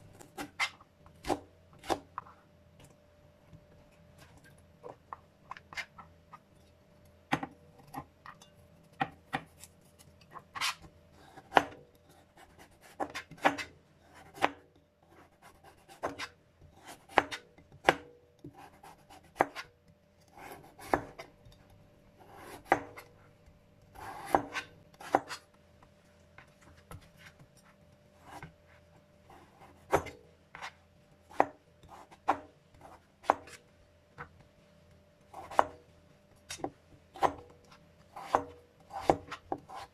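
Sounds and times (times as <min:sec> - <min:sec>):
knife chopping on plastic board: 0:00.2 - 0:02.2, 0:07.3 - 0:08.1, 0:09.0 - 0:09.7, 0:11.4 - 0:11.8, 0:12.4 - 0:14.6, 0:15.8 - 0:19.7, 0:20.4 - 0:21.3, 0:22.2 - 0:23.1, 0:23.9 - 0:25.4, 0:29.3 - 0:33.6, 0:35.3 - 0:35.8, 0:36.5 - 0:39.9.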